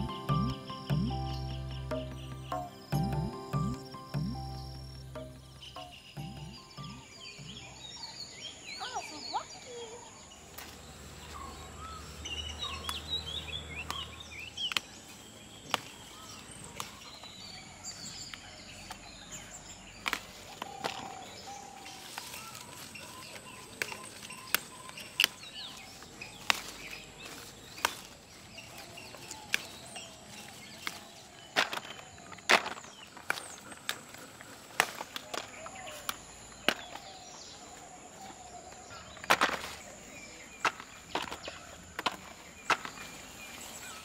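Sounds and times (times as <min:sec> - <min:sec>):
insect drone: 0:00.0 - 0:08.8
bird calls: 0:00.0 - 0:44.0
pepper stems snapping: 0:10.5 - 0:10.8, 0:12.6 - 0:17.4, 0:20.0 - 0:37.4, 0:38.6 - 0:43.6.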